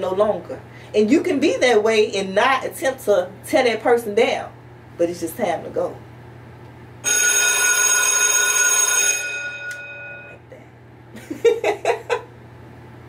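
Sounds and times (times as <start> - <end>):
bell-like chime ringing: 7.0 - 10.4
woman chuckling: 11.2 - 12.3.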